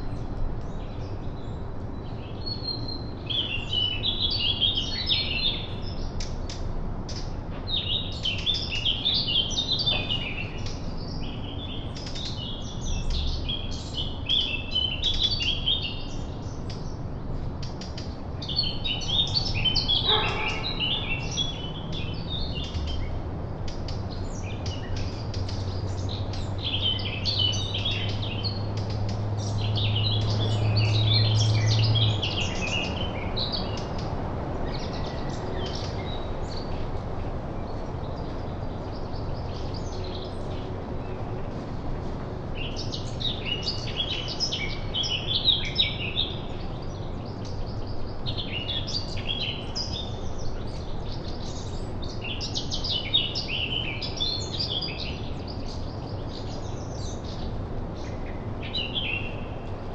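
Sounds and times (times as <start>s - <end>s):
songbirds chirping: 0.0s - 59.9s.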